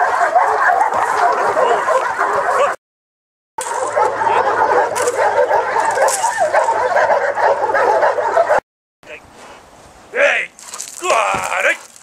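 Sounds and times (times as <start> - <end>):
dogs barking and yipping: 0.0 - 2.8, 3.6 - 8.6, 10.6 - 12.0.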